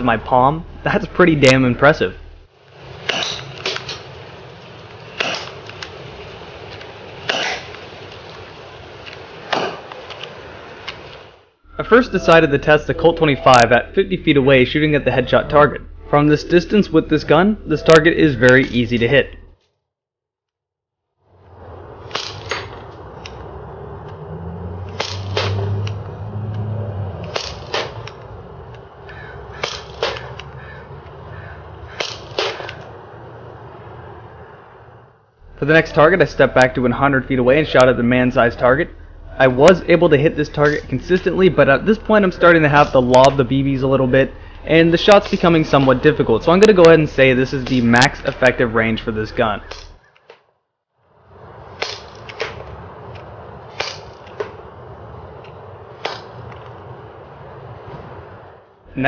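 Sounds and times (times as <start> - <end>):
gas pistol shots popping: 53.7 - 54.5.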